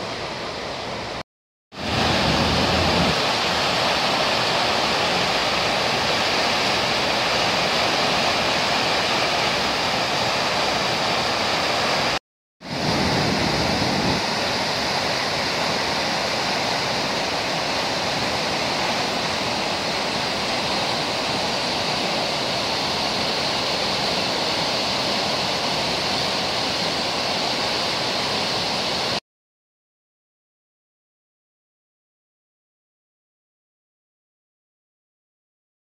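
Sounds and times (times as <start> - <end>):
river rushing: 0.0 - 1.2, 1.8 - 29.2.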